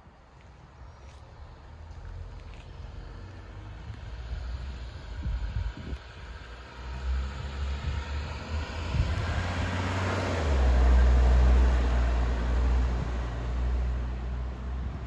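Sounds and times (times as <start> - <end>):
car driving past: 2.0 - 15.0
heavy low rumble: 2.3 - 6.6, 7.3 - 9.8, 10.4 - 15.0.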